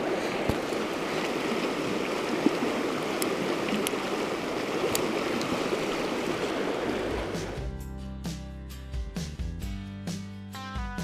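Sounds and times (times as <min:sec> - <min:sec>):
water rushing over rocks: 0:00.0 - 0:07.6.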